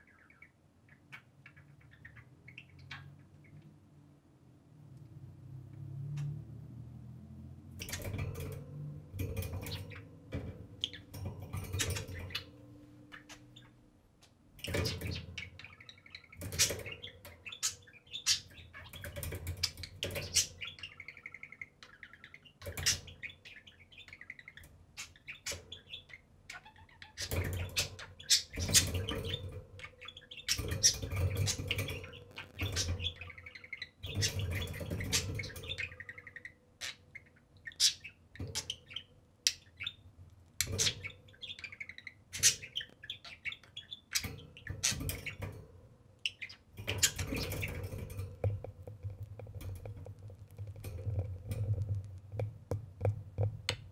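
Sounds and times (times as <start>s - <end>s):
budgerigars chattering: 14.6s - 40.0s, 40.6s - 45.4s.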